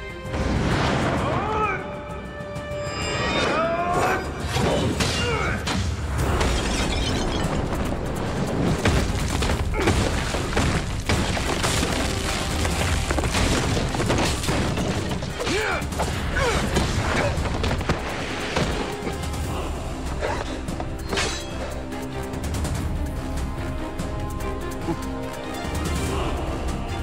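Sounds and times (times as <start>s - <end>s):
background music: 0.0s - 27.0s
wood and debris smashing: 8.7s - 18.0s.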